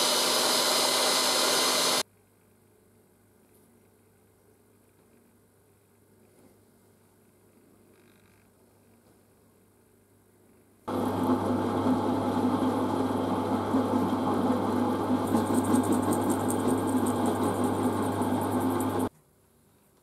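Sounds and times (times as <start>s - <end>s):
drill press cutting metal: 0.0s - 2.0s.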